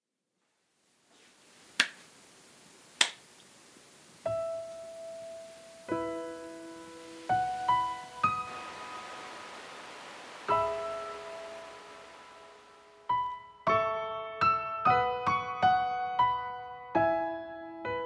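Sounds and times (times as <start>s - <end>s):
sharp hand claps: 1.8s - 2.0s, 3.0s - 3.2s
slow solo piano: 4.2s - 18.0s.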